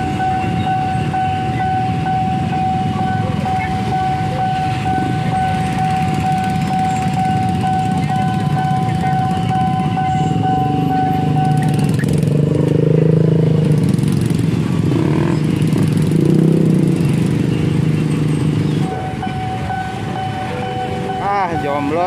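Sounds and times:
level crossing alarm: 0.0s - 12.0s, 18.8s - 22.0s
motorcycle engines revving: 0.0s - 22.0s.

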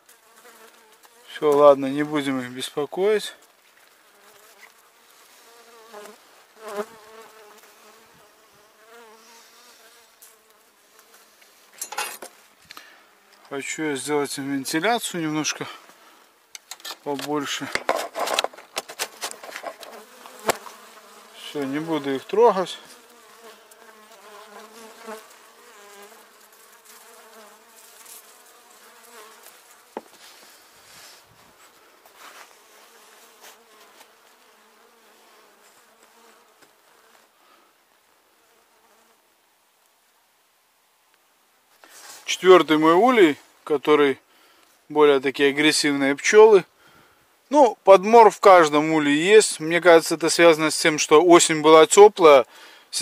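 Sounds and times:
bees humming in hive: 0.0s - 1.2s, 4.1s - 11.0s, 19.3s - 30.0s, 32.6s - 36.6s
honeybees buzzing: 0.0s - 2.3s, 4.0s - 11.4s, 17.5s - 31.8s, 32.4s - 37.2s.

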